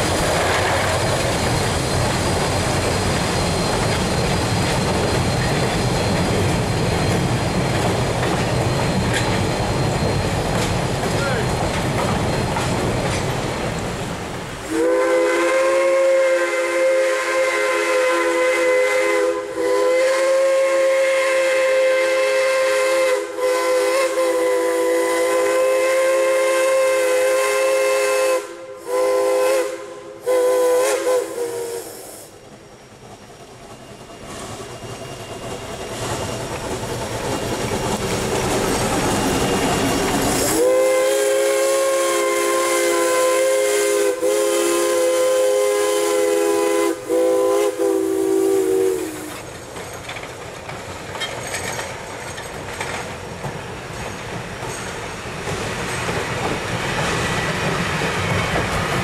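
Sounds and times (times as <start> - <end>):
locomotive rumble and hiss: 0.0 - 59.0
train rumble: 0.0 - 59.0
steam locomotive chime whistle: 14.6 - 32.3, 39.3 - 49.5.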